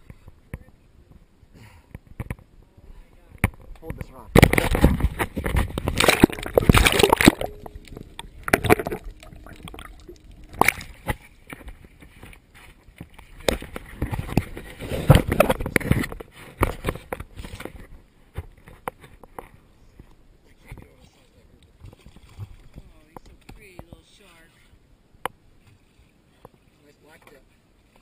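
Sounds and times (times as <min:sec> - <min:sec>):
water splashing against boat: 0:03.4 - 0:18.8.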